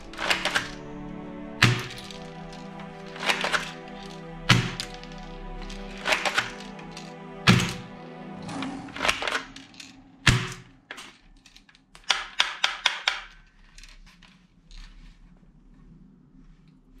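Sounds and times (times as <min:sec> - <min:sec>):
sharp plastic clicks and taps: 0:12.0 - 0:13.3.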